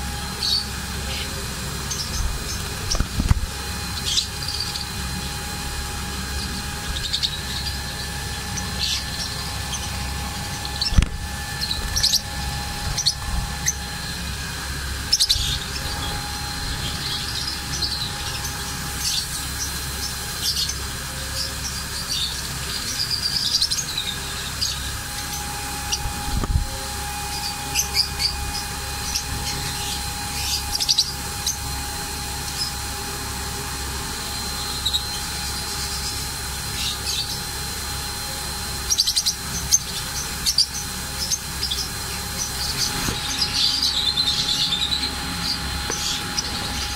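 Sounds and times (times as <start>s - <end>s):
background hum: 0.0s - 46.9s
lovebirds chirping: 38.9s - 46.9s.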